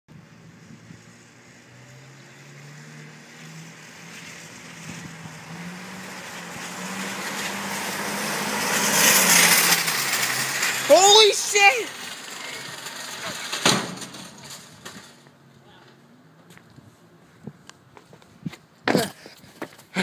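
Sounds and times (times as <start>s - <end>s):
car engine passing by: 0.3s - 15.5s
tyre and wheel noise: 3.6s - 16.6s.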